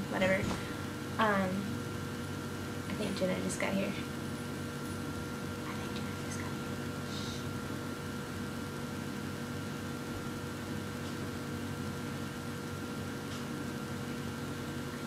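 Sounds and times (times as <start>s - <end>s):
faint constant whine: 0.0s - 15.0s
low electrical hum and hiss: 0.0s - 15.0s.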